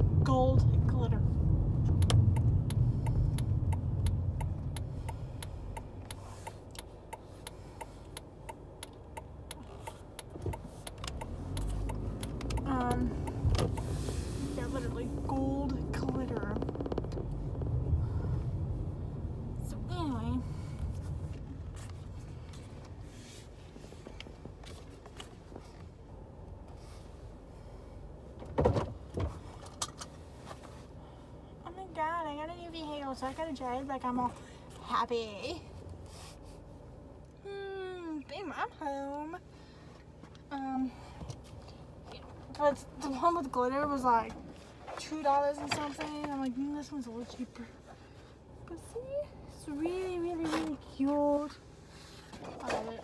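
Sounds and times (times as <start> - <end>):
turn signal ticking: 0.0 - 23.1
road and engine rumble: 0.0 - 53.0.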